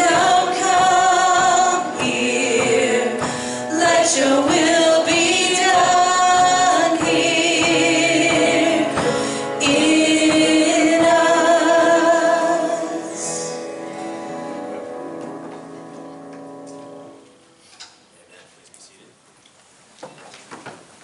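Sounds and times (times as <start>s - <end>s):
congregation singing a hymn: 0.0s - 15.4s.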